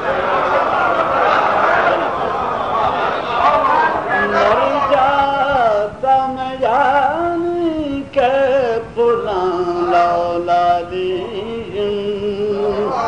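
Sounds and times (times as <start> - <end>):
man chanting: 4.1 - 13.0.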